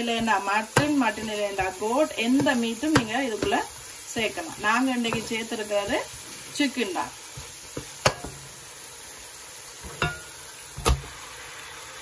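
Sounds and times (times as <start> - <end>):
spoon knocking in pot: 0.0 - 3.7, 4.9 - 5.6, 7.4 - 8.5, 9.9 - 10.3
sauce sizzling in a pot: 0.0 - 12.0.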